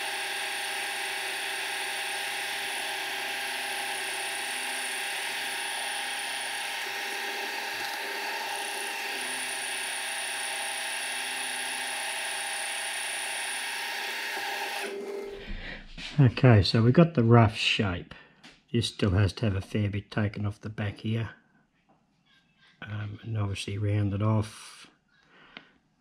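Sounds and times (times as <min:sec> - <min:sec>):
milling machine cutting metal: 0:00.0 - 0:15.4.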